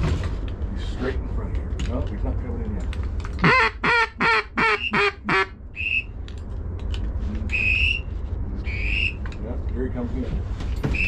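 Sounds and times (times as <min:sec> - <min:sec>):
duck call quacks: 0:03.4 - 0:06.0
high whistle notes: 0:05.7 - 0:06.1, 0:07.5 - 0:09.2.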